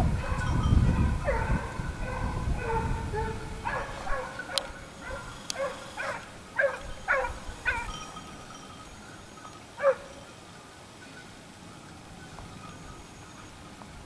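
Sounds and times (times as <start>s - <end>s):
hounds baying: 0.0s - 10.4s.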